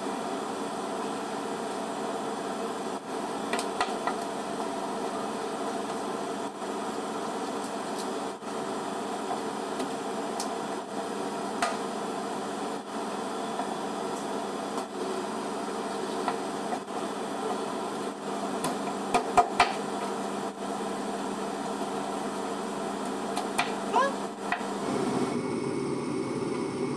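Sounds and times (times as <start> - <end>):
steady hum: 23.8 - 26.9.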